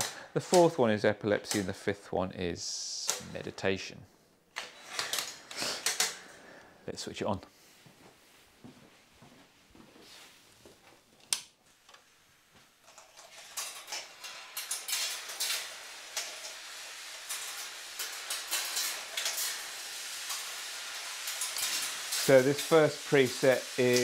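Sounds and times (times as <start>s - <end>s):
balls rattling on metal tracks: 12.8s - 24.0s.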